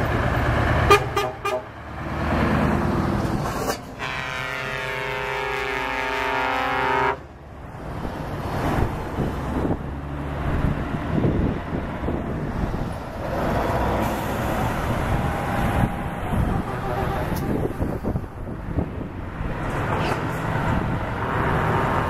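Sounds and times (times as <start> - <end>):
trucks driving past: 0.0 - 22.0
truck air horn chord: 4.0 - 7.2.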